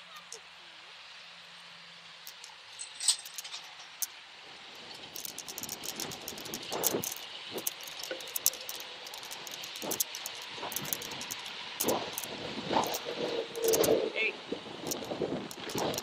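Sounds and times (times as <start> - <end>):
small rattles and clicks: 2.2 - 16.0
wind noise on microphone: 4.8 - 16.0.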